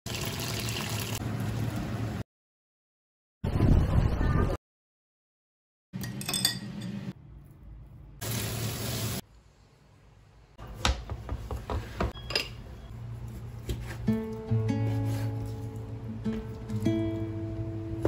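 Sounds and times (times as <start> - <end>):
guitar music: 14.0 - 18.0.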